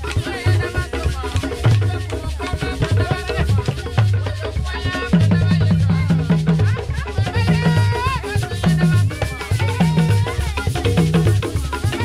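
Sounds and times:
hand drums beating: 0:00.0 - 0:12.0.

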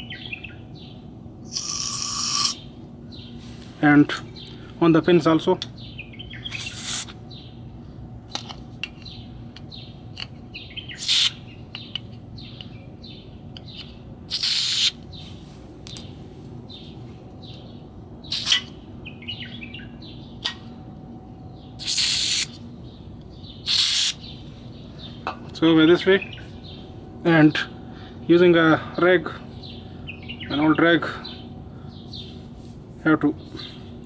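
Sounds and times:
birds chirping: 0:00.0 - 0:34.0
aerosol spray hissing bursts: 0:11.0 - 0:11.3, 0:14.3 - 0:15.0, 0:21.8 - 0:22.5, 0:23.6 - 0:24.2.

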